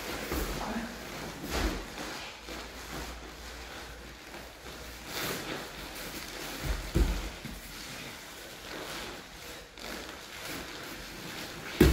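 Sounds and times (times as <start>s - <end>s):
bodies shifting on mats: 0.0s - 11.9s
fabric rustling: 0.0s - 11.9s.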